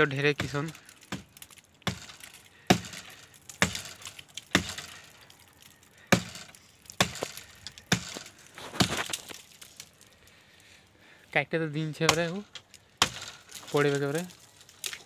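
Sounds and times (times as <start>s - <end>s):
axe chopping wood: 0.3s - 5.0s, 6.1s - 9.4s, 12.0s - 12.4s, 13.0s - 15.0s.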